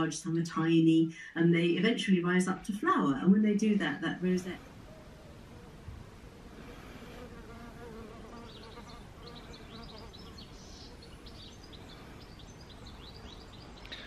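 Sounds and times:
faint garden background: 0.0 - 14.0
flying insect buzzing: 6.4 - 13.4.

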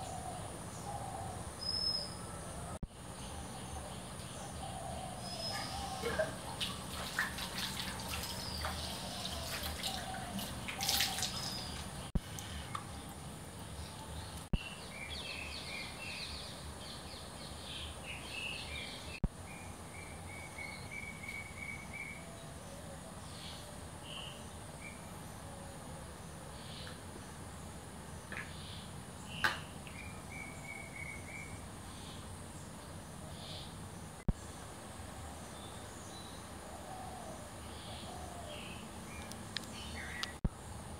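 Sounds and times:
birds chirping: 0.0 - 25.6, 35.2 - 40.4
water splashing at a sink: 6.1 - 12.1.

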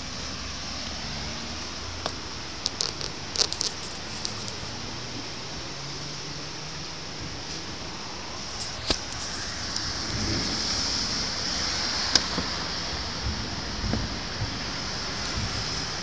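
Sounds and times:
steady rain falling: 0.0 - 16.0
sharp taps and clicks: 2.0 - 4.6.

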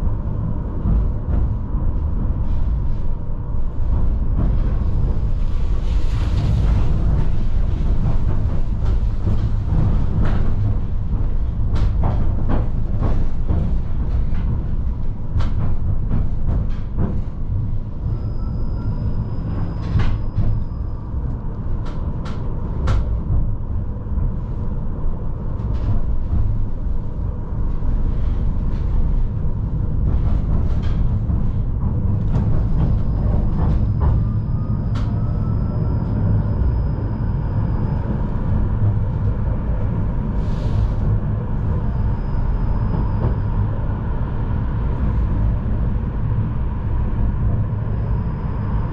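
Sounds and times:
tram rumble: 0.0 - 48.9.

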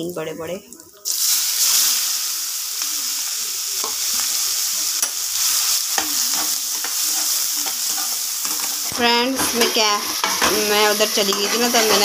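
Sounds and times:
onions sizzling in hot oil: 1.0 - 12.0
spatula scraping and tapping pan: 5.9 - 12.0.

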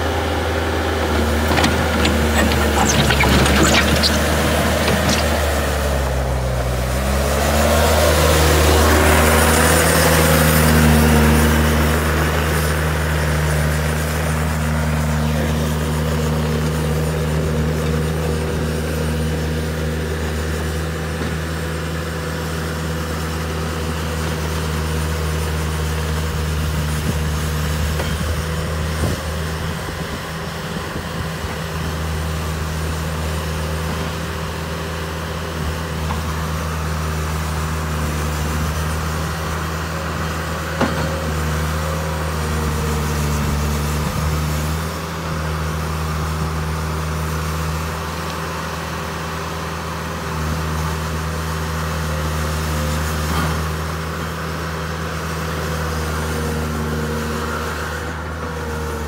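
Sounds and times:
diesel engine running hard: 0.0 - 59.0
bucket working dirt: 0.4 - 6.2.

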